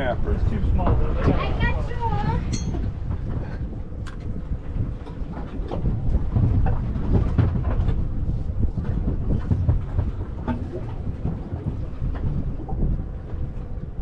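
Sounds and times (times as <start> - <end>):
water splashing against hull: 0.0 - 14.0
wind rumbling on microphone: 0.0 - 14.0.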